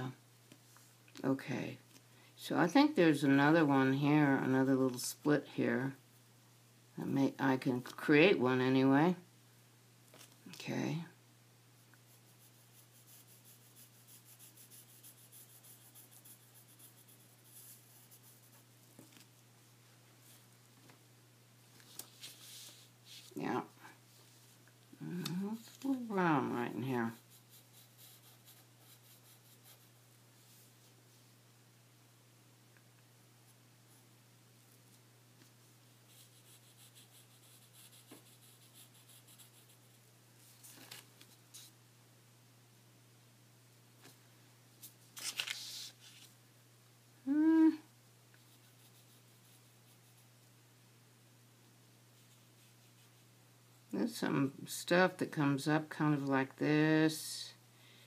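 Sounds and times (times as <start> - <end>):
pencil scratching on paper: 12.0 - 18.8, 25.6 - 30.0, 36.1 - 40.0.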